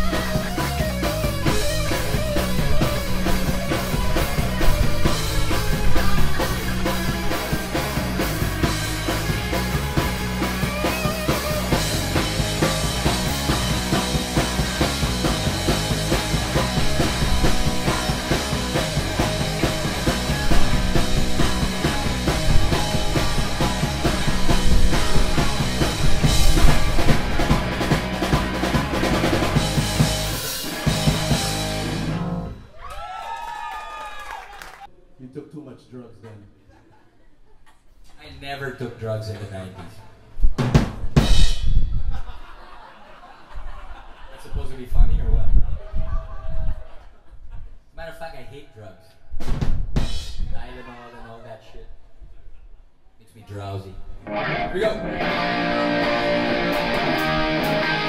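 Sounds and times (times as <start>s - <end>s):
live rock band playing loud: 0.0s - 32.6s, 54.3s - 58.0s.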